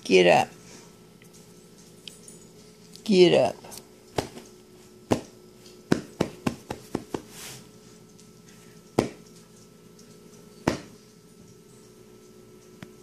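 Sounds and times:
hand patting a blanket: 0:05.9 - 0:07.5.

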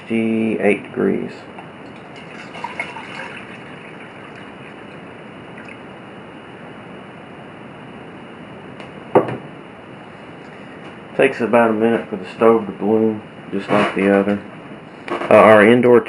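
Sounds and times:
water pouring into metal mug: 0:01.9 - 0:05.8.

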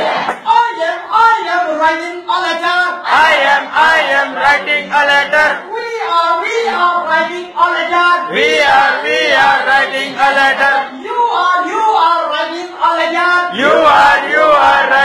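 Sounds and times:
song with singing voices: 0:02.6 - 0:05.7, 0:06.6 - 0:11.9, 0:12.6 - 0:15.0.

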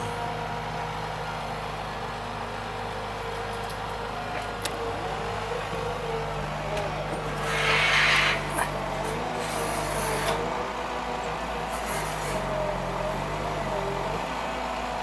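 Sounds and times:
diesel engine running: 0:00.0 - 0:15.0
loud hissing rush: 0:07.4 - 0:08.6.

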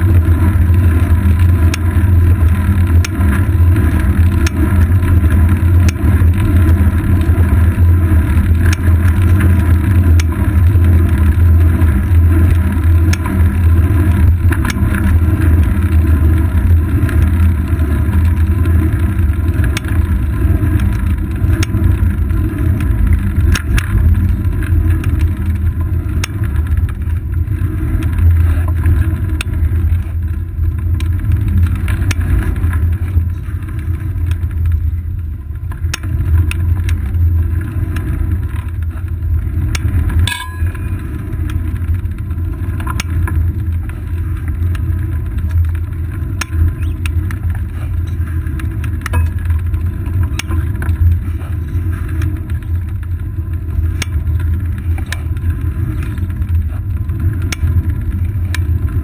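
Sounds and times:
bicycle road vibration: 0:00.0 - 0:59.0
wind rumble: 0:00.0 - 0:59.0
small clicks and knocks from bumps: 0:00.1 - 0:59.0.

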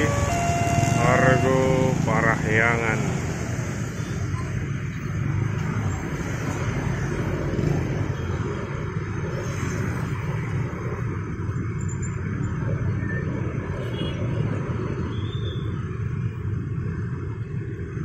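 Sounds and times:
truck passing: 0:00.0 - 0:04.6
motorcycles passing: 0:00.0 - 0:18.0.

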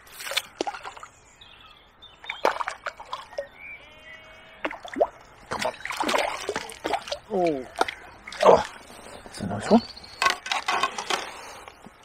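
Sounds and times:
fish splashing at surface: 0:04.6 - 0:07.2.

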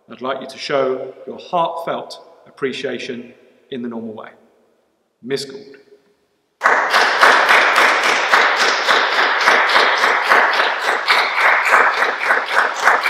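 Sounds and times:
hands clapping: 0:06.6 - 0:13.0.

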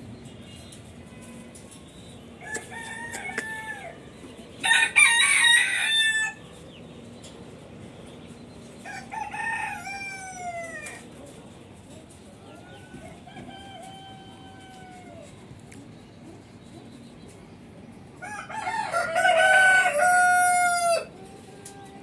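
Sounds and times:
roosters crowing: 0:02.3 - 0:06.6, 0:08.8 - 0:11.2, 0:12.4 - 0:15.6, 0:18.1 - 0:22.0.

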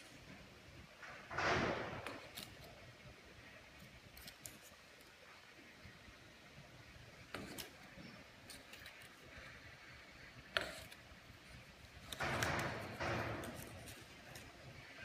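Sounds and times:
paper rustling and scraping: 0:01.0 - 0:02.8, 0:07.3 - 0:09.8, 0:10.4 - 0:15.0.

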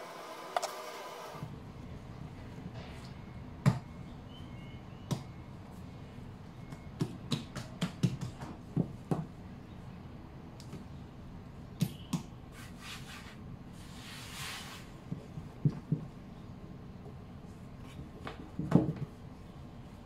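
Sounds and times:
dough slapping on a mat: 0:06.7 - 0:09.4.

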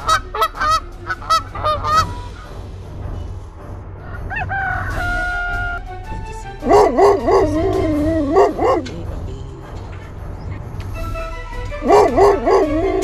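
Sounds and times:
rooster crowing: 0:04.0 - 0:05.8
puppy howling: 0:06.6 - 0:08.9, 0:11.8 - 0:13.0.

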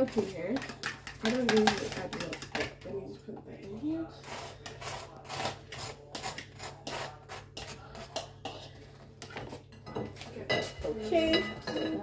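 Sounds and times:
utensil scraping a bowl: 0:00.0 - 0:03.0, 0:04.1 - 0:10.2
eggs beaten in a bowl: 0:00.0 - 0:12.0.

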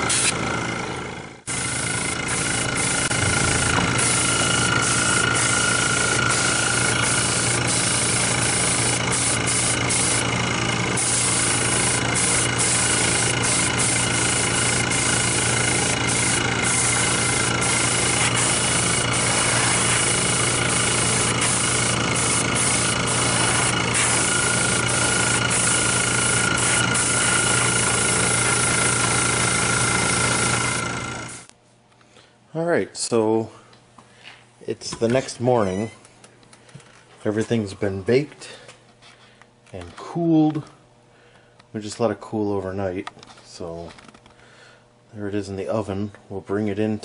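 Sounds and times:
spray gun hissing: 0:00.0 - 0:00.4, 0:01.5 - 0:31.5
air compressor humming: 0:00.0 - 0:31.5.

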